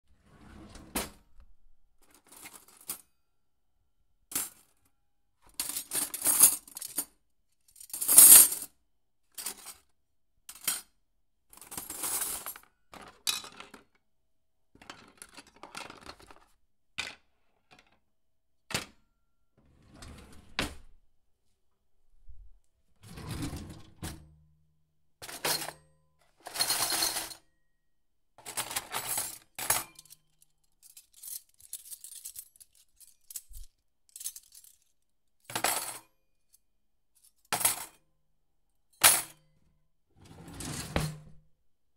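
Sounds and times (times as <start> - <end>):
cutlery clinking and rattling: 5.6 - 7.0, 25.2 - 25.8, 26.4 - 27.4, 28.4 - 34.8.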